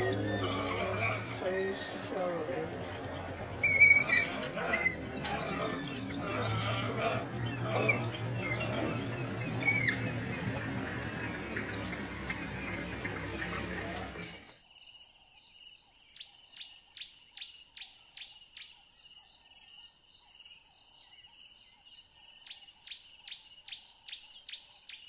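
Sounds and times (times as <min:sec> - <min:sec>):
loud rough noise: 0:00.0 - 0:14.5
insects trilling drone: 0:00.0 - 0:25.0.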